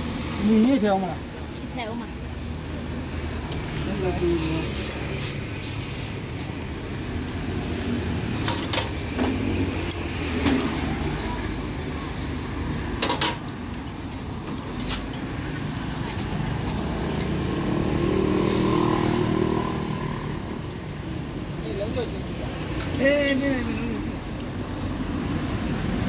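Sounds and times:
street traffic rumble: 0.0s - 26.0s
vehicle engine: 1.8s - 26.0s
metal spoon clinking ceramic bowls: 17.0s - 17.5s.

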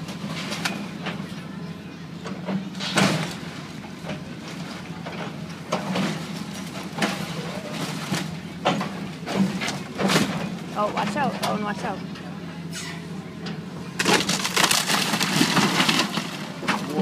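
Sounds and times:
excavator engine running: 0.0s - 17.0s
falling debris: 14.0s - 17.0s
timber splintering and crashing: 14.0s - 17.0s.

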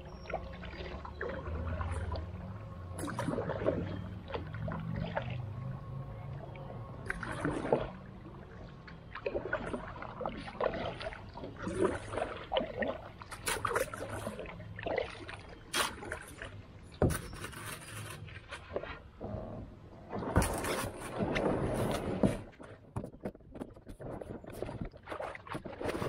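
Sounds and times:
creek water splashing: 0.0s - 19.2s.

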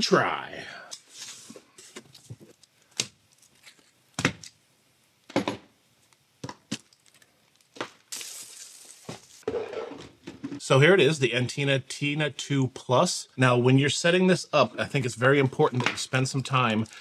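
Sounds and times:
plastic bag crinkling: 6.7s - 9.4s.

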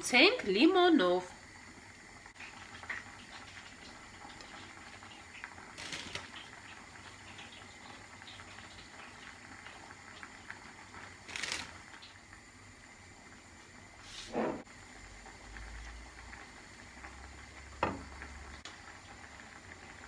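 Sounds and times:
salad leaves rustling: 5.8s - 6.4s, 11.2s - 11.8s.

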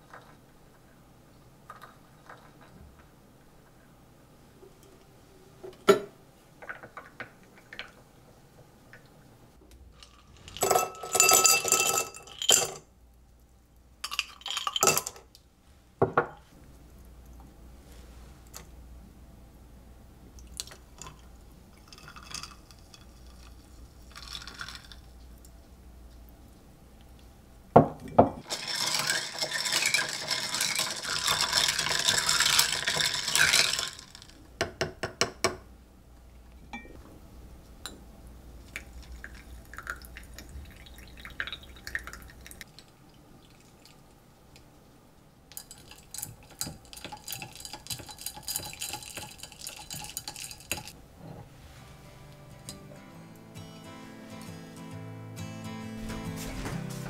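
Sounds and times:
glass clinks: 36.7s - 37.0s.

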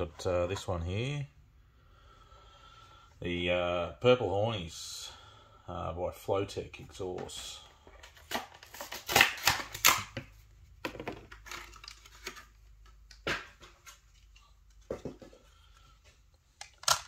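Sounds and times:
plastic packaging clicks and rustles: 8.0s - 14.5s, 16.6s - 17.0s.

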